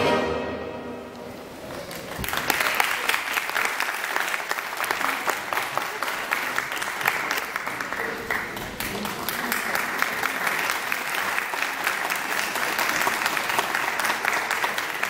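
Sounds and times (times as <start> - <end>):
music: 0.0 - 1.3
audience applause: 1.5 - 15.0.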